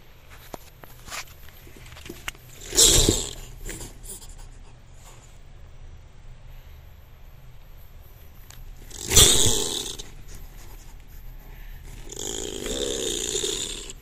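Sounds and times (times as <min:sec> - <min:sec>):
opossum growling: 0:01.8 - 0:04.4, 0:08.7 - 0:14.0.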